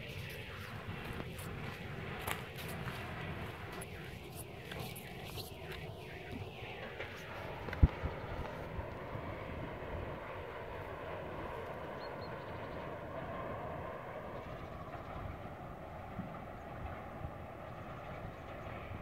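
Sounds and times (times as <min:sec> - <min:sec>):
distant locomotive engine drone: 0:00.0 - 0:19.0.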